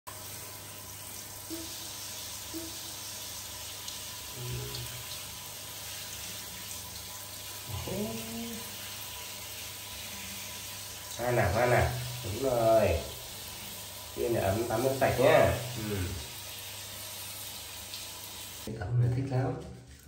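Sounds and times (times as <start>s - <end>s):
shower spraying onto tiled floor: 0.1s - 18.7s
brief vocal sound: 15.7s - 16.2s.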